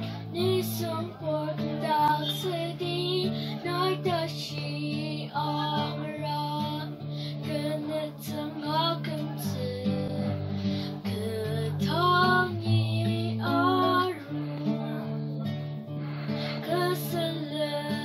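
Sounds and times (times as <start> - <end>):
girl singing: 0.0 - 15.2, 16.5 - 18.0
acoustic guitar: 0.0 - 18.0.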